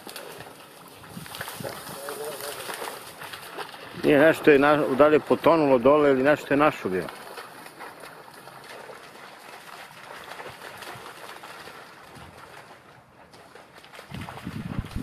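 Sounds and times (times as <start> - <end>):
crackling rustle of reeds: 0.0 - 4.4
trickling water: 0.0 - 15.0.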